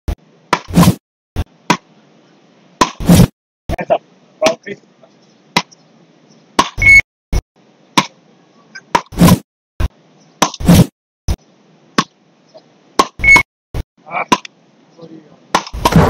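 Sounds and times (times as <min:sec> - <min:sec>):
wooden rackets hitting ball: 0:01.7 - 0:01.9, 0:06.6 - 0:06.8, 0:08.0 - 0:08.2, 0:08.9 - 0:09.2, 0:10.4 - 0:10.6, 0:12.0 - 0:12.2, 0:13.0 - 0:13.2, 0:14.3 - 0:14.5, 0:15.5 - 0:16.0
short high beep: 0:06.8 - 0:07.0.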